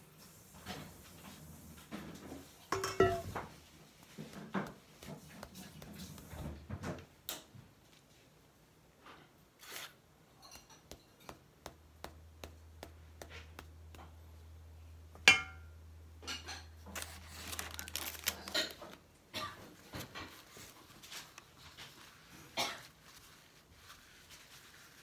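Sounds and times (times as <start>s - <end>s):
spatula tapping and scraping metal pan: 2.7s - 6.3s, 10.4s - 14.1s
parchment paper rustling: 3.3s - 6.8s, 16.8s - 25.0s.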